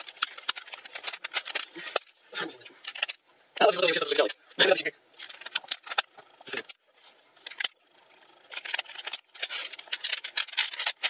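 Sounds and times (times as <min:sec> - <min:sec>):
plastic keyboard clicks and rattling: 0:00.0 - 0:02.1, 0:05.2 - 0:06.8, 0:08.5 - 0:11.0
rustling: 0:00.0 - 0:11.0.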